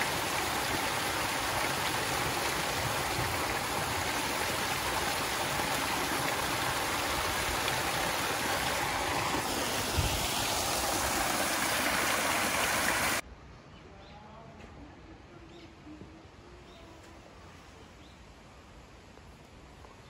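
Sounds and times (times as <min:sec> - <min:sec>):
water splashing into stone pool: 0:00.0 - 0:13.2.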